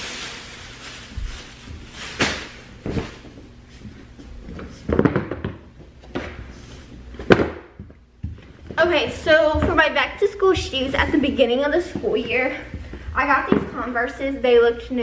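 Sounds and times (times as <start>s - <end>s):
bag rustling: 0.0s - 3.4s.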